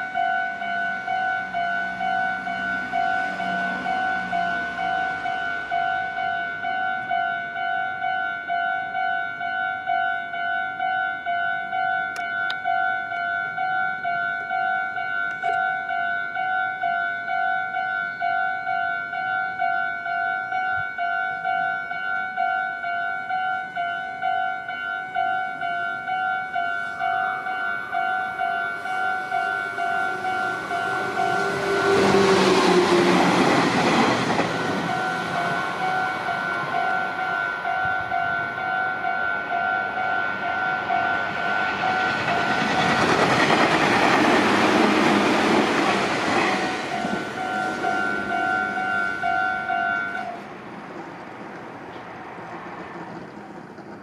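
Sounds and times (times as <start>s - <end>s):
electric train rushing past: 0.0s - 8.6s, 19.5s - 54.0s
level crossing warning bell: 0.0s - 50.4s
rail clatter: 27.0s - 38.9s, 40.6s - 54.0s.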